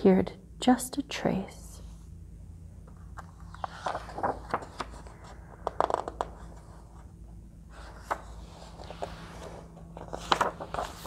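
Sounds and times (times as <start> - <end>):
book pages turning: 2.8 - 11.0
paper taps: 5.6 - 6.4.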